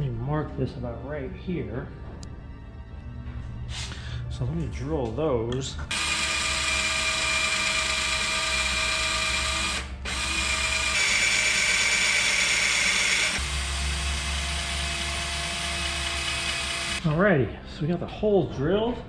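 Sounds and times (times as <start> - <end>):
power drill motor whine: 5.9 - 17.0.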